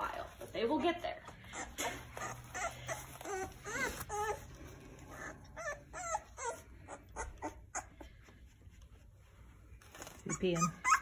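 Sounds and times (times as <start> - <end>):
puppies whimpering: 1.2 - 8.5, 10.1 - 11.0.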